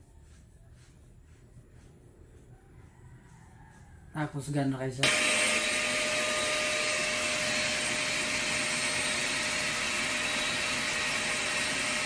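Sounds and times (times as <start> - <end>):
handheld vacuum cleaner running: 5.0 - 12.0.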